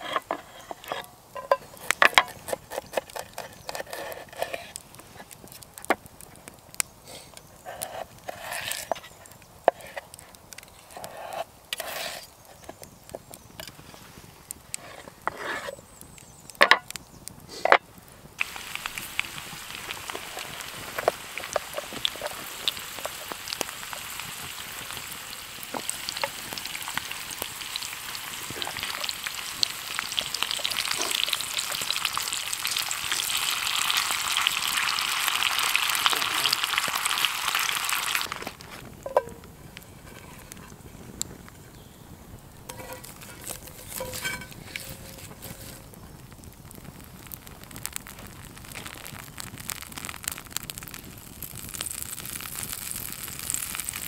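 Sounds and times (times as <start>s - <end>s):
knife turning wedges in skillet: 0.0s - 4.8s, 10.9s - 12.8s, 14.8s - 15.8s, 38.4s - 39.4s, 42.7s - 45.8s
potatoes sizzling in skillet: 0.0s - 6.4s, 7.0s - 54.0s.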